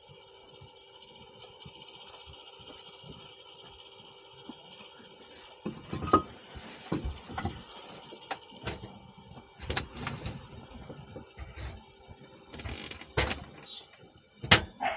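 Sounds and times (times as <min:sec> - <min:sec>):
faint steady hum: 0:00.0 - 0:14.9
knocks and clatter of wood: 0:05.6 - 0:07.7, 0:12.5 - 0:13.6.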